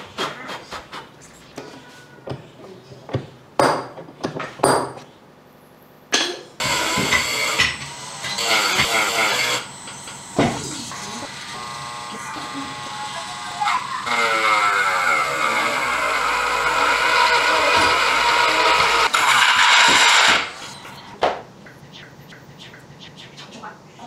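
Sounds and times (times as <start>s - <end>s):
power tool running: 6.6s - 20.8s.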